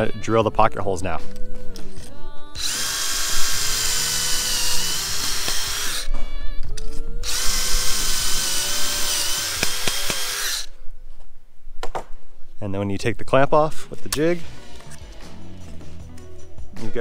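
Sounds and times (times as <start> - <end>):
power drill boring into wood: 2.6 - 6.1, 7.2 - 10.7.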